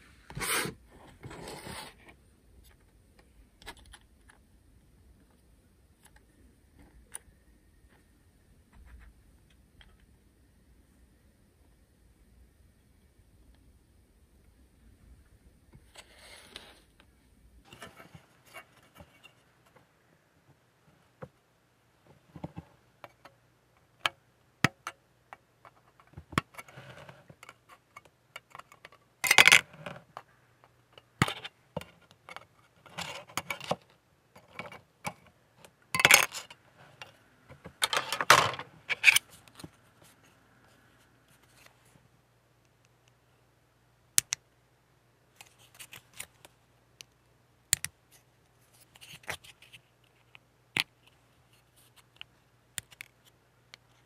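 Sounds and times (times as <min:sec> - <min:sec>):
faint low hum: 0:00.0 - 0:54.0
plastic parts clicking and tapping: 0:44.2 - 0:44.4, 0:45.4 - 0:48.0, 0:52.1 - 0:54.0.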